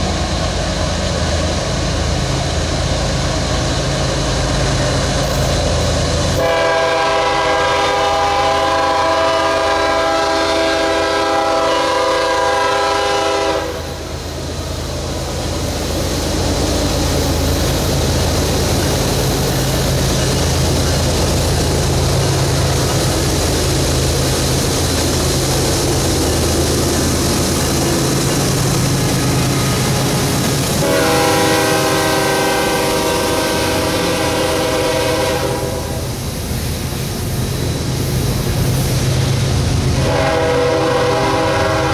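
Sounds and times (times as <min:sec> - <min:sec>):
locomotive engine drone: 0:00.0 - 0:41.9
train wheel noise: 0:00.0 - 0:41.9
locomotive air horn blast: 0:06.4 - 0:14.0, 0:29.2 - 0:36.2, 0:40.0 - 0:41.9.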